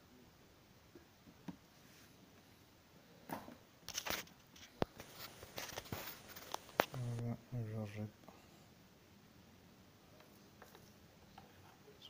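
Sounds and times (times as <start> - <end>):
rustling: 3.9 - 7.3.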